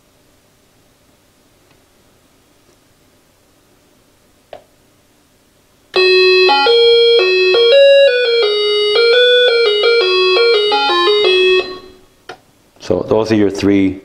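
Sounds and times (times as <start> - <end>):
electronic chime melody: 6.0 - 12.0.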